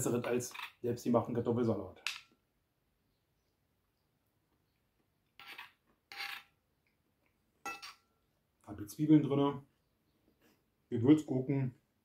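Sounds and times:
fork clinking on plate: 7.6 - 8.0.

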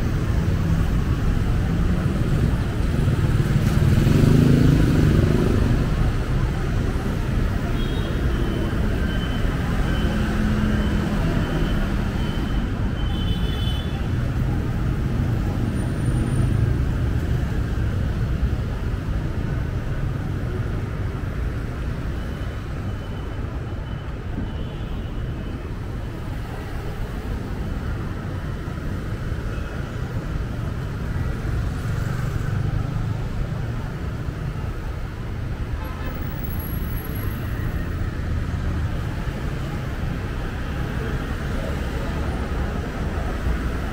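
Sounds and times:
street traffic rumble: 0.0 - 43.9.

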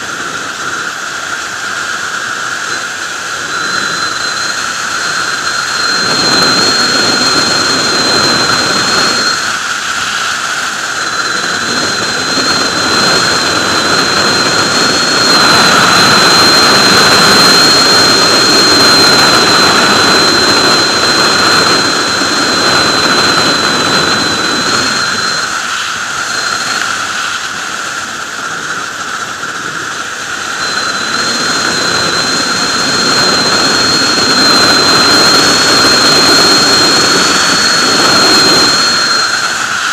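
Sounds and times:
motorcycle engine: 0.0 - 39.9
wind rush: 0.0 - 39.9
high thin whistle: 2.2 - 28.9, 30.3 - 39.9.

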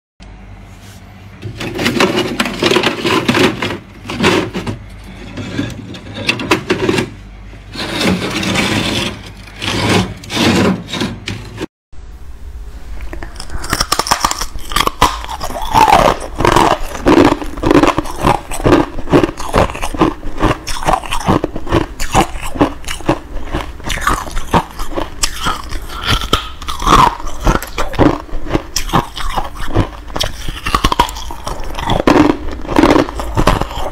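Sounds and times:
freezer frost being scraped: 1.6 - 4.7, 5.3 - 11.7, 13.4 - 33.9
chewing crisp frost flakes: 13.0 - 33.9.

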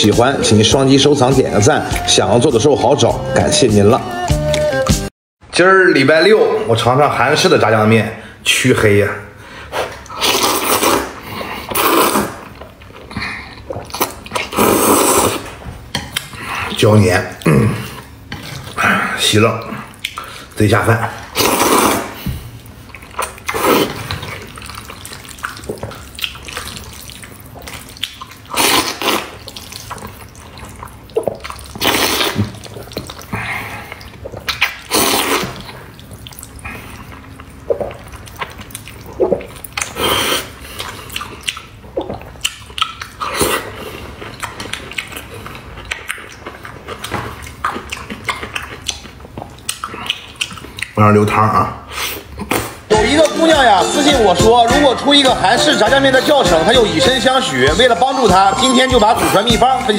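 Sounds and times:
wet mouth sounds: 4.3 - 5.1, 9.8 - 18.8, 21.2 - 51.0, 51.8 - 53.0
loud wet noodle slurps: 9.8 - 12.5, 13.7 - 15.6, 21.3 - 22.2, 23.4 - 25.8, 27.9 - 29.8, 31.2 - 33.2, 34.5 - 35.7.

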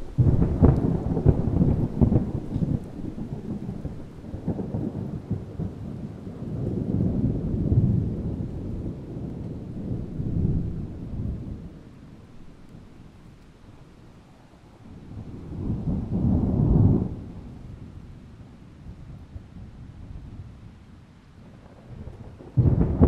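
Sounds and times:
distant rolling thunder: 0.0 - 14.0, 14.7 - 23.0.

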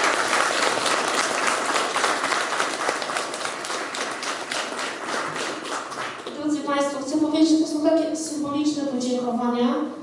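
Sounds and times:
crowd applauding: 0.0 - 6.4.

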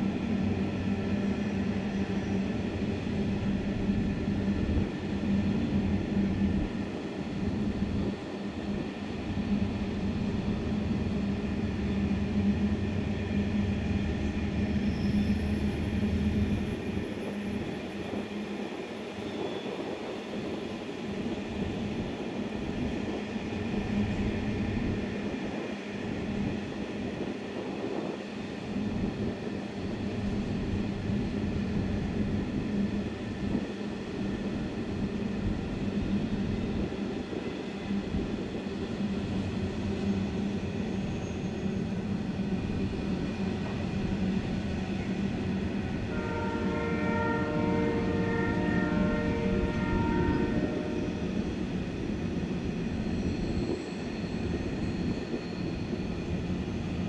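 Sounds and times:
train wheels clattering on rails: 36.8 - 46.1.

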